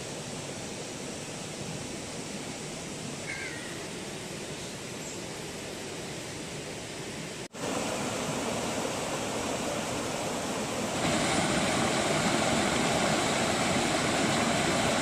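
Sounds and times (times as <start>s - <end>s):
water rushing over rocks: 6.5s - 15.0s.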